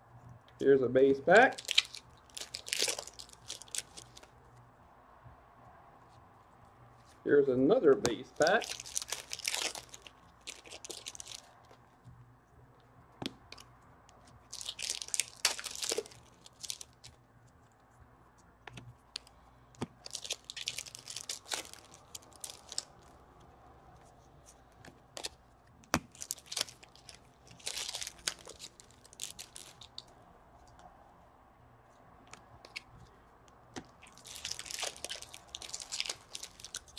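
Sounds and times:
card pack wrappers tearing: 1.3s - 4.3s, 8.3s - 11.8s, 14.4s - 17.1s, 20.0s - 23.1s, 26.0s - 30.0s, 34.0s - 36.9s
cards clicking and rustling: 1.3s - 4.3s, 7.8s - 11.8s, 13.2s - 17.2s, 18.6s - 30.8s, 32.2s - 36.9s.

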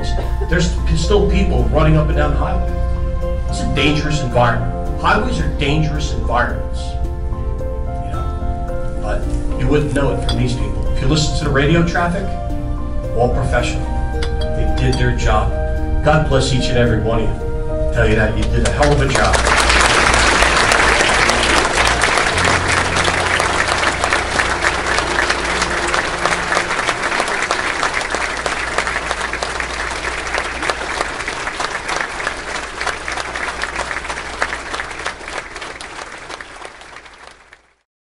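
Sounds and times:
large audience applauding: 18.4s - 37.8s.

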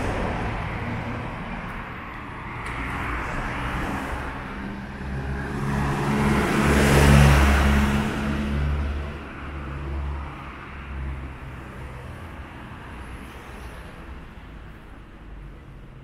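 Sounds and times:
steady traffic noise: 0.0s - 16.0s
vehicle engine passing: 2.9s - 9.7s.

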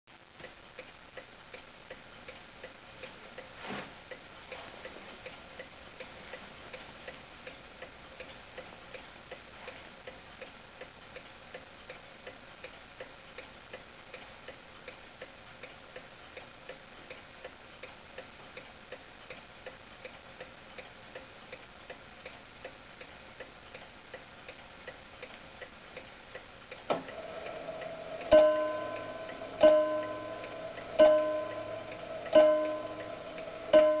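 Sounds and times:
clock ticking: 0.3s - 34.0s
clock mechanism click: 26.7s - 34.0s
clock striking chime bar: 28.2s - 34.0s.

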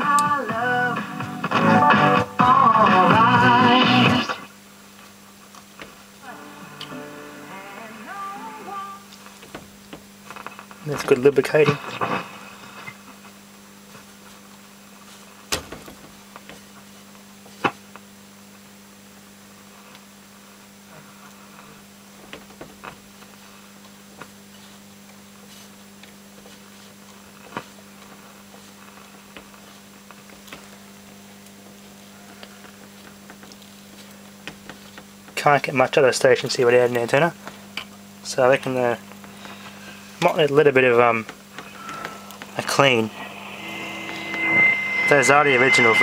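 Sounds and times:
radio hum: 10.3s - 13.1s, 40.8s - 46.0s.

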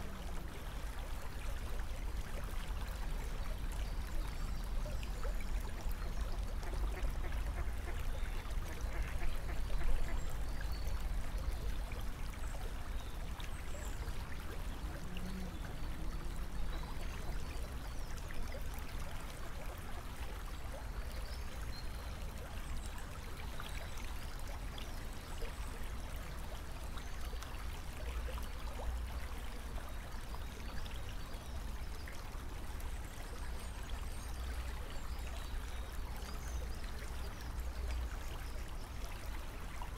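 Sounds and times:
water trickling and rushing: 0.0s - 39.9s.

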